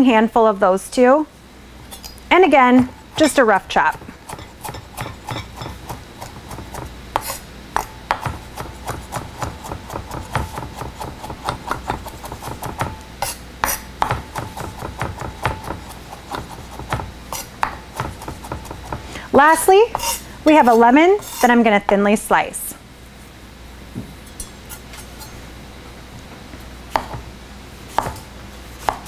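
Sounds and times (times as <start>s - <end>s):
knife chopping on wooden board: 2.8s - 19.0s, 26.9s - 27.3s, 27.9s - 29.0s.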